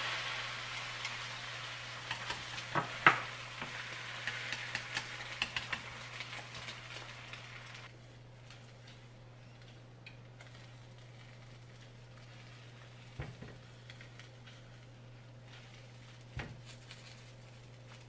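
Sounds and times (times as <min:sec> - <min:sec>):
egg sizzling in a pan: 0:00.0 - 0:08.0, 0:08.9 - 0:18.0
chopsticks tapping and scraping pan: 0:02.0 - 0:07.4.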